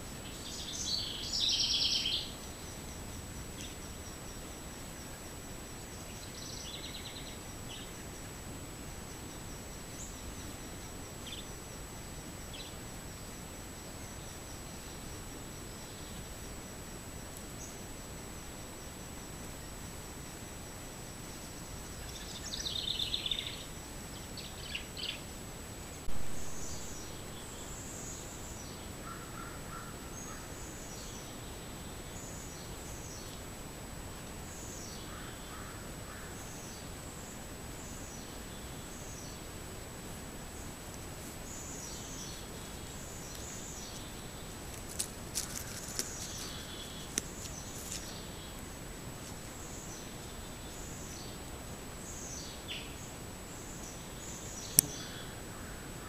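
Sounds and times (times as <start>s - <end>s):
faint high whine: 0.0s - 56.0s
microphone hiss: 0.0s - 56.0s
bird calls: 54.4s - 55.8s.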